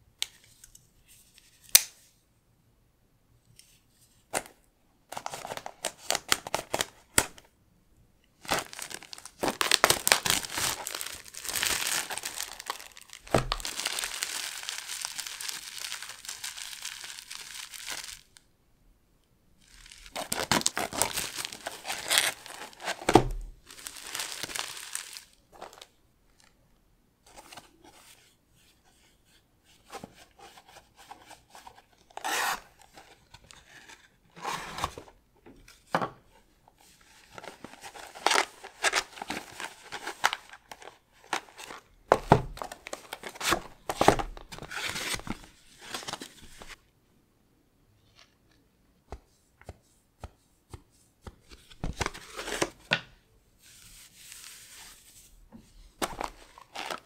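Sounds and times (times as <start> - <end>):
box rustling: 8.4 - 15.2, 19.7 - 25.9, 56.0 - 57.0
plastic shrink wrap crackling: 8.4 - 18.4, 19.6 - 25.9, 56.0 - 57.0.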